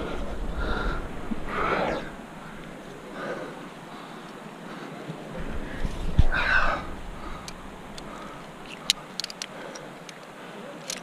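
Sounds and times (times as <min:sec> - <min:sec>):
metal clicks of carabiners: 0:07.4 - 0:11.0.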